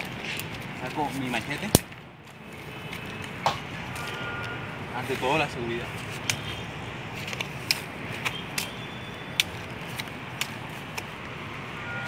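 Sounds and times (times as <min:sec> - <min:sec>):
dry twigs snapping and crackling: 0:00.0 - 0:04.6, 0:07.2 - 0:11.3.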